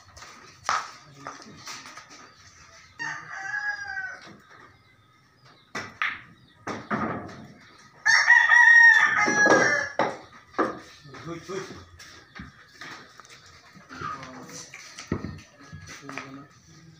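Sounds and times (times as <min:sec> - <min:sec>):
rooster crowing: 0:03.0 - 0:04.3, 0:08.0 - 0:10.0.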